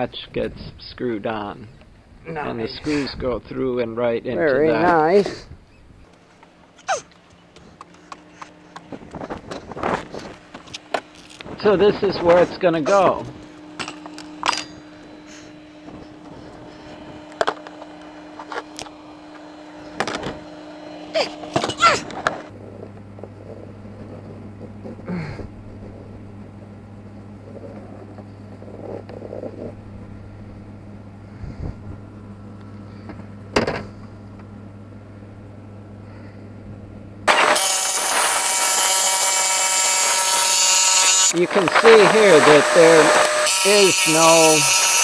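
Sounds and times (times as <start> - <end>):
faint steady hum: 0.0 - 37.5
jigsaw cutting panel: 37.3 - 45.0.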